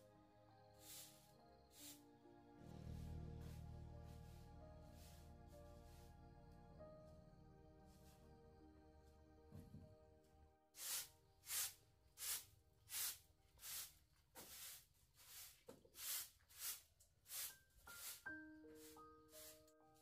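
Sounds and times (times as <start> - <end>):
broom sweeping concrete floor: 0.8 - 2.1, 2.7 - 6.1, 10.8 - 19.7.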